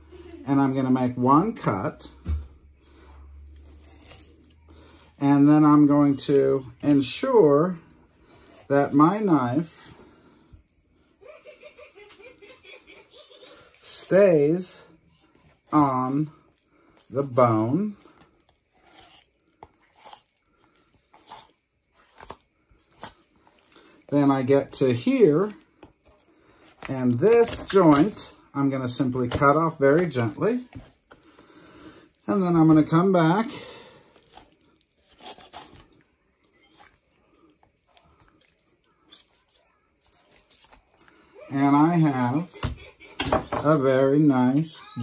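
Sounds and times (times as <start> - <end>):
knife cutting and scraping meat: 3.5 - 4.6, 15.3 - 24.1, 33.8 - 41.2
knife scraping along bone: 18.5 - 23.5, 34.2 - 35.9.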